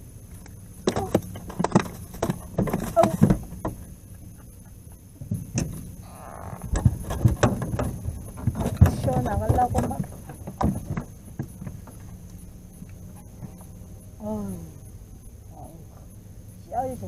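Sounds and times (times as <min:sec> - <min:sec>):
plastic cooler knocks and thumps: 0:00.8 - 0:03.9, 0:06.6 - 0:12.0.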